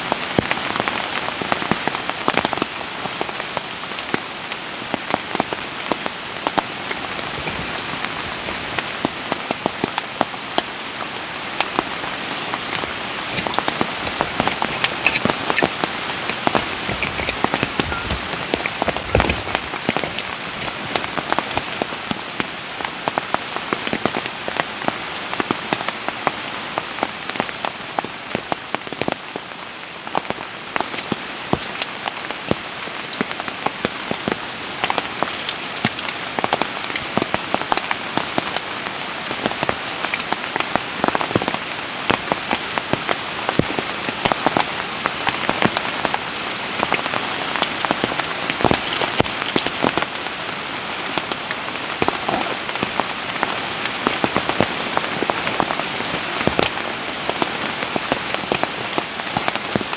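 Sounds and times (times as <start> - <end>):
raindrop hits close by: 0.0 - 59.9
steady rain hiss: 0.0 - 59.9.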